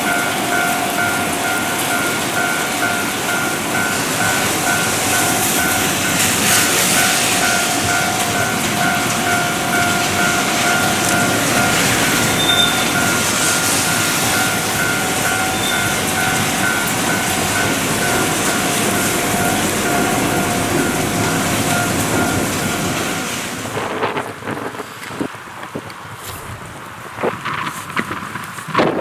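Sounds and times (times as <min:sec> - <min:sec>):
train wheels and motors rushing: 0:00.0 - 0:29.0
wind noise: 0:02.7 - 0:29.0
two-tone ding: 0:07.0 - 0:18.3.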